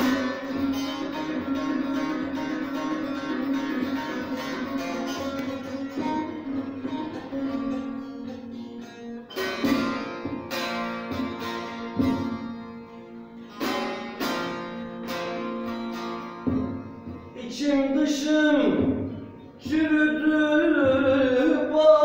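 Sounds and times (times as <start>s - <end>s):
droning lute note: 0.0s - 17.3s
long-necked lutes strumming: 0.0s - 22.0s.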